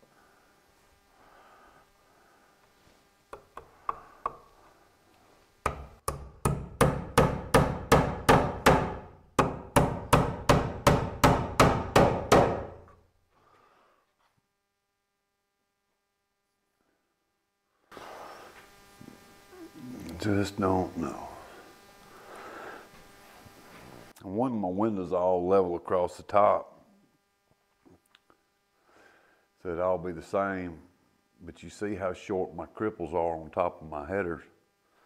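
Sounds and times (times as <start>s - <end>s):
hammer nailing into wood: 5.7s - 12.9s.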